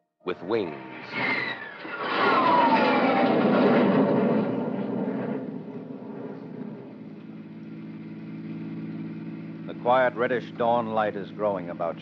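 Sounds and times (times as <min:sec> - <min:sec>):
jet aircraft flying past: 0:00.4 - 0:10.6.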